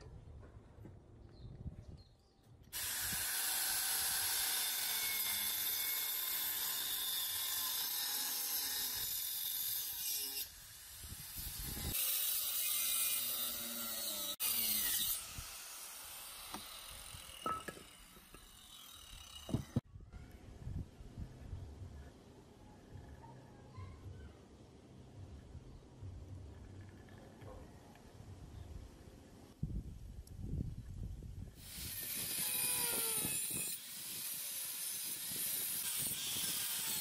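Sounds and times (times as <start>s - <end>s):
angle grinder cutting wood: 2.8s - 19.8s, 31.6s - 37.0s.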